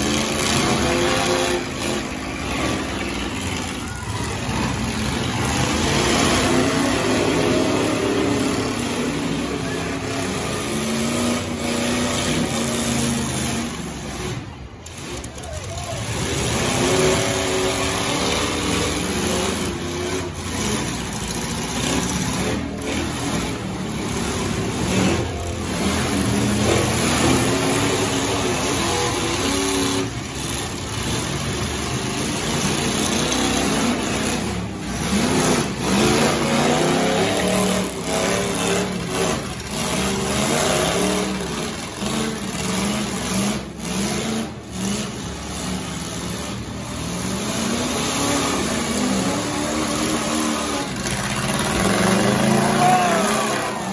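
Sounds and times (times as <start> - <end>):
truck engines revving: 0.0 - 53.9
trucks crashing: 0.0 - 53.9.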